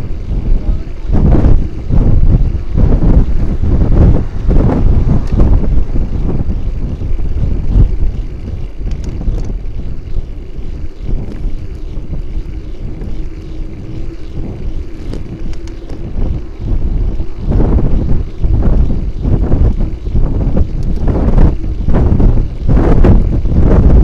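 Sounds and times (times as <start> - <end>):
faint steady hum: 0.0 - 24.0
road rumble: 0.0 - 24.0
wind buffeting microphone: 0.0 - 24.0
light clicks and rattles: 7.9 - 16.6.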